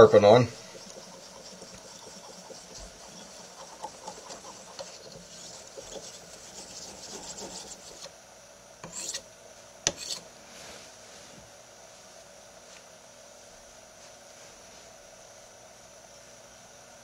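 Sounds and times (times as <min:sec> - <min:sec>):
knife scraping on whetstone: 0:00.5 - 0:08.1, 0:08.8 - 0:09.2, 0:09.9 - 0:10.2.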